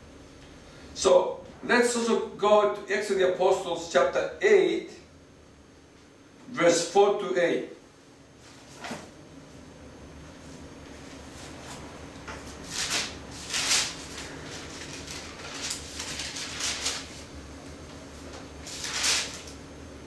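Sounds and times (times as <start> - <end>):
faint steady hum: 0.0 - 20.0
thin pages turning: 11.4 - 17.3, 18.4 - 19.6.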